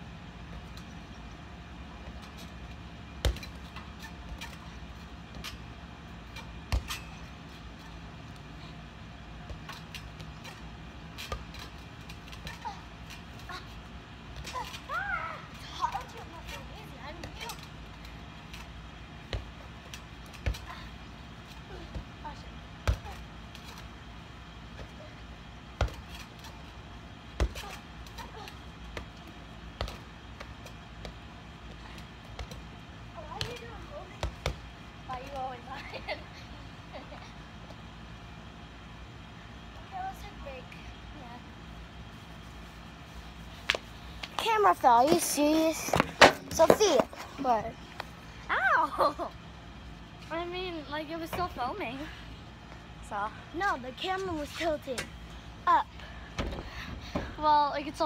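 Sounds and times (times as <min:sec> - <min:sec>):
steady low hum: 0:00.0 - 0:58.0
tetherball being hit: 0:06.7 - 0:07.2.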